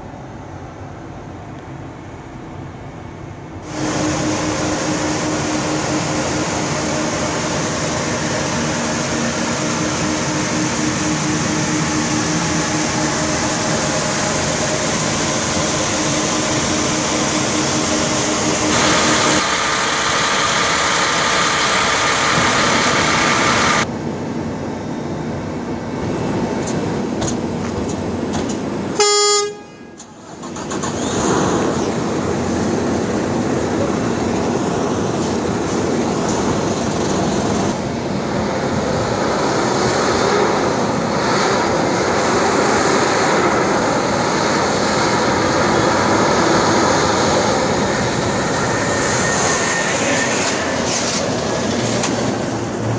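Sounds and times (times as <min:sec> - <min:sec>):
heavy truck running: 0:00.0 - 0:52.9
diesel truck idling: 0:03.5 - 0:24.5
truck horn toot: 0:29.0 - 0:30.0.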